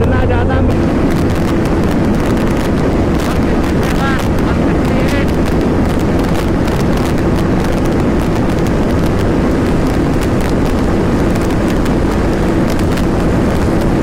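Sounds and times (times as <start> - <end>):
motorcycle engine running: 0.0 - 14.0
wind rush on microphone: 0.0 - 14.0.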